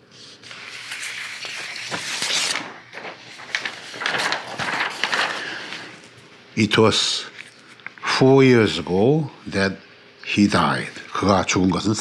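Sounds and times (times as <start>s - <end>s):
paper sheets rustling and sliding: 0.2s - 6.3s
sharp paper crinkles: 0.3s - 6.1s.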